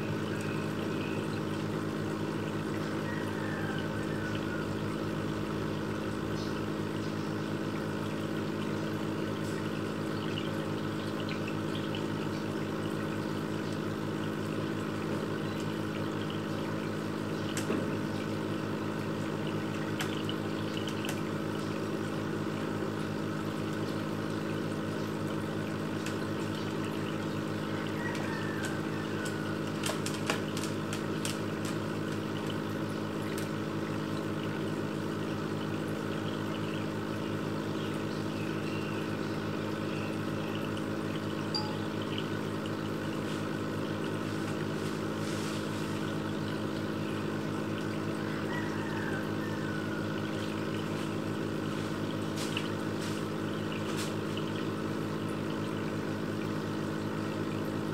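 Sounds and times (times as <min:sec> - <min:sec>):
filter pump humming: 0:00.0 - 0:57.9
water bubbling and trickling: 0:00.0 - 0:57.9.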